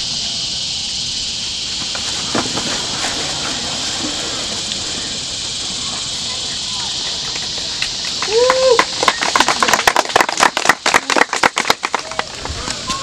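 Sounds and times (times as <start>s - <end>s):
high-pitched insect chorus: 0.0s - 13.0s
people shuffling on hard court: 1.7s - 9.6s.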